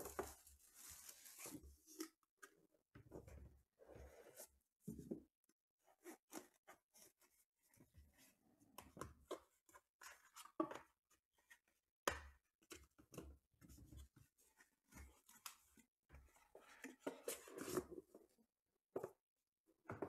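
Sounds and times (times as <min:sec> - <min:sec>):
soft cardboard rustles: 0:00.0 - 0:02.2.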